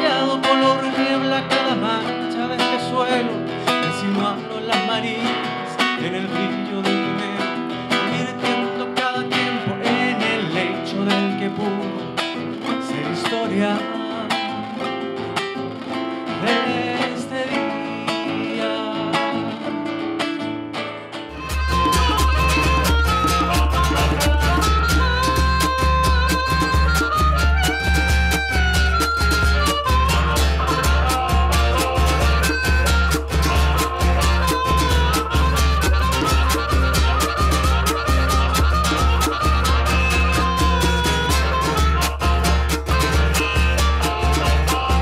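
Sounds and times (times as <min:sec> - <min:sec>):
man singing: 0:00.0 - 0:15.1, 0:16.3 - 0:20.0, 0:29.5 - 0:37.5, 0:43.1 - 0:45.0
acoustic guitar strumming: 0:00.0 - 0:45.0.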